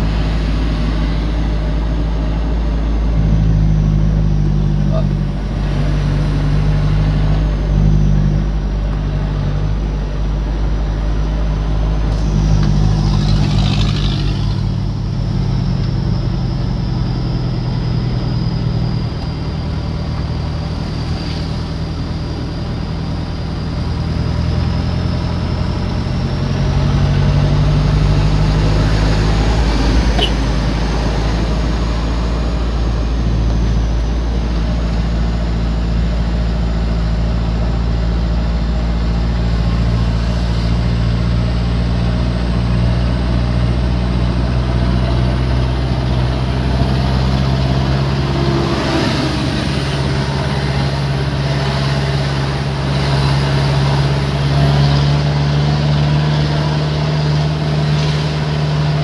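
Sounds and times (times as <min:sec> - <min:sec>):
road and tyre noise: 0:00.0 - 0:59.0
vehicle engine running: 0:00.0 - 0:59.0.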